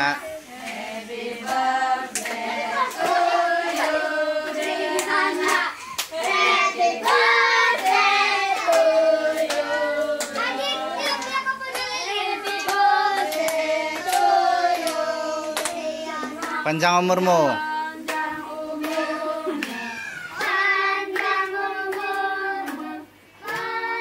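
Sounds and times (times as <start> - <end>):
group singing a birthday song: 0.0 - 24.0.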